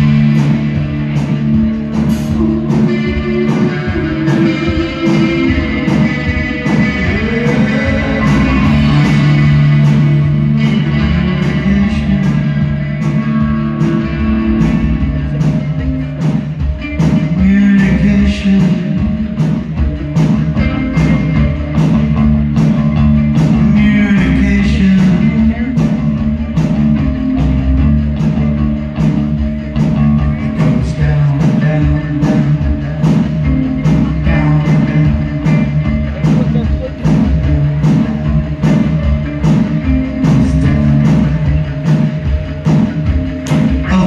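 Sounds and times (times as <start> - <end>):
bass guitar: 0.0 - 44.0
drum beat: 0.0 - 44.0
electric guitars: 0.0 - 44.0
person singing: 2.0 - 14.2, 16.9 - 19.5, 23.4 - 26.2, 30.2 - 33.2, 33.9 - 38.4, 39.9 - 42.1.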